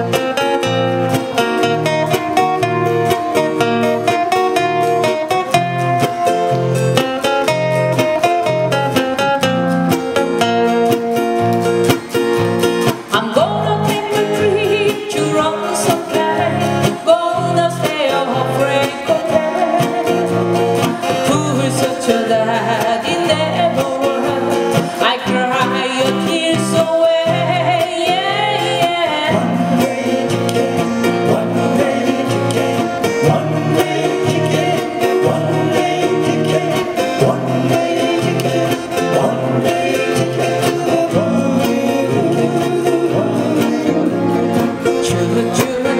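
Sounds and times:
acoustic guitars strumming: 0.0 - 45.9
woman and men singing: 12.9 - 45.9.

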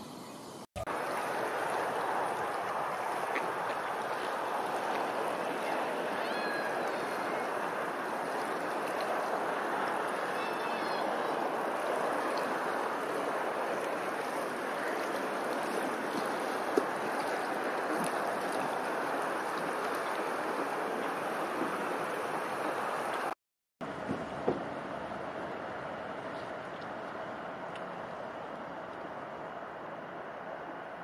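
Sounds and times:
outdoor ambience: 0.0 - 31.0
water rushing and lapping: 0.7 - 23.4.

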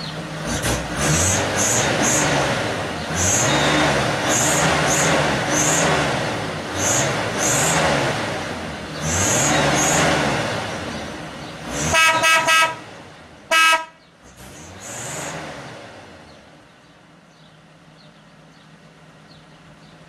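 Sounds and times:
car engine revving: 0.0 - 16.7
car horn honking: 11.8 - 14.1.

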